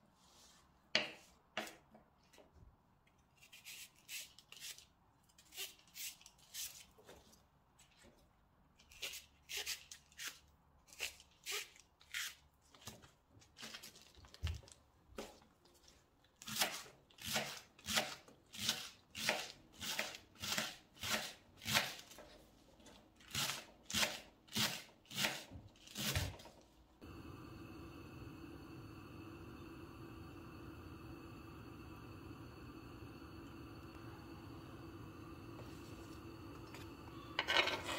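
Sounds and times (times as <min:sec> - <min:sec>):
steady hiss: 0:27.0 - 0:37.3.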